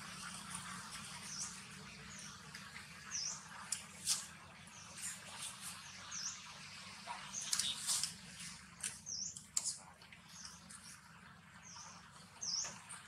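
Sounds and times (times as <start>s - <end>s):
light crackles: 3.6s - 5.8s, 7.4s - 11.1s
small bird chirping: 7.2s - 10.8s.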